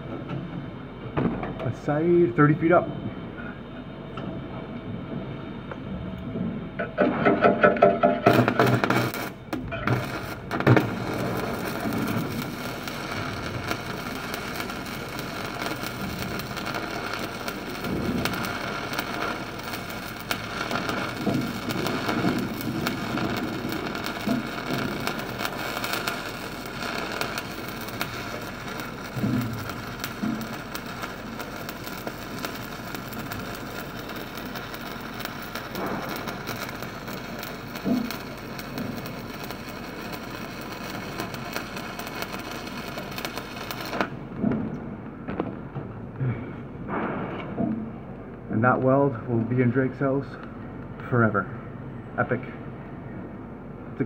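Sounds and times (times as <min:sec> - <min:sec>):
welding arc spits: 0:06.8 - 0:45.6
welding arc crackling: 0:06.8 - 0:45.8.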